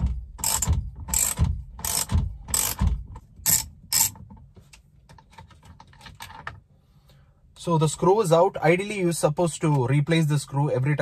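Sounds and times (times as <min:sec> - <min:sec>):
ratchet wrench clicking: 0:00.4 - 0:04.2.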